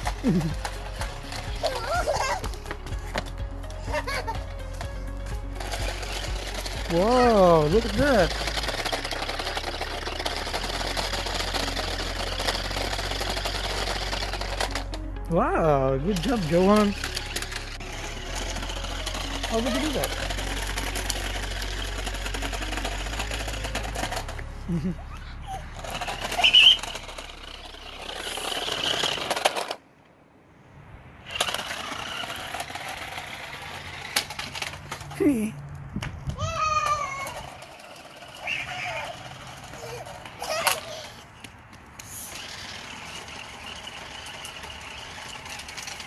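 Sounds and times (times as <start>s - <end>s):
toy car motors whirring: 0.0s - 2.6s, 3.7s - 15.0s, 15.6s - 29.8s, 31.2s - 35.5s, 36.4s - 46.0s
plastic wheels rattling on pavement: 0.0s - 29.8s, 31.2s - 46.0s
high squeal: 26.1s - 27.0s.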